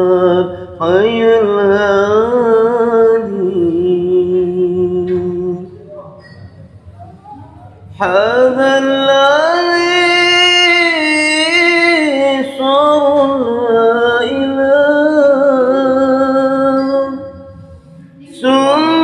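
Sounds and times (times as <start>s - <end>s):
man singing unaccompanied: 0.0s - 5.7s, 8.0s - 17.2s, 18.3s - 19.0s.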